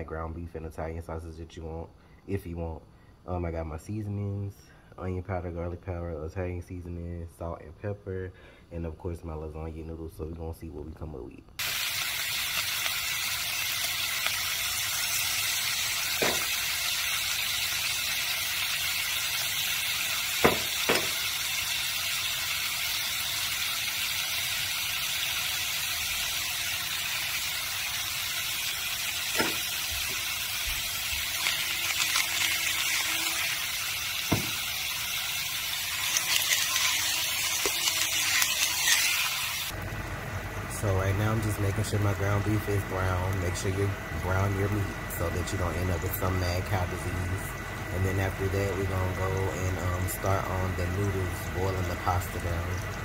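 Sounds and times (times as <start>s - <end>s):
ground beef sizzling in frying pan: 11.6s - 40.5s.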